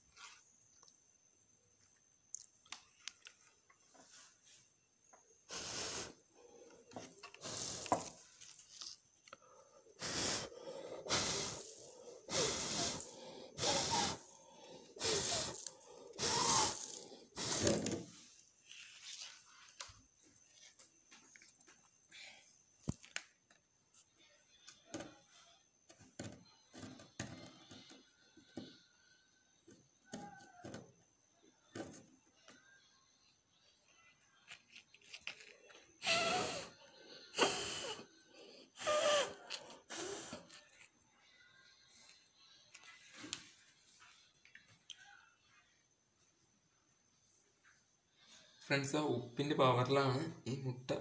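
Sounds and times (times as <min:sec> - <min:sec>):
person blowing puffs of breath: 0:05.5 - 0:06.7, 0:07.4 - 0:08.2, 0:09.9 - 0:18.0, 0:36.0 - 0:40.6.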